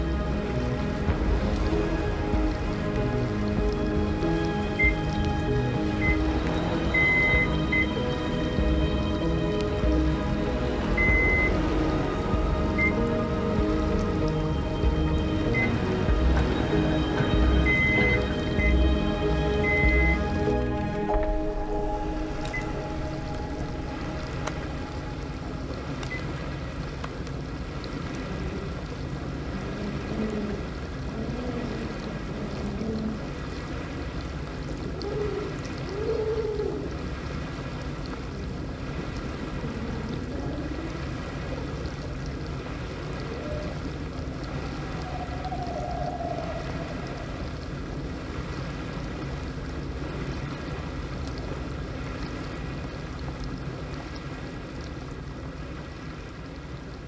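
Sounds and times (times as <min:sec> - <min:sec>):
low moaning tones: 0:00.0 - 0:26.2, 0:28.2 - 0:33.6, 0:39.4 - 0:42.0, 0:43.2 - 0:48.3
water sloshing: 0:00.0 - 0:57.0.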